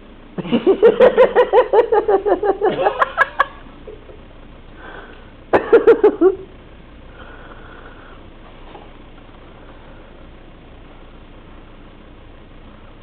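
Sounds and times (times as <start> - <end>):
low room hiss: 0.0 - 13.0
person laughing: 0.4 - 4.2, 5.6 - 6.5.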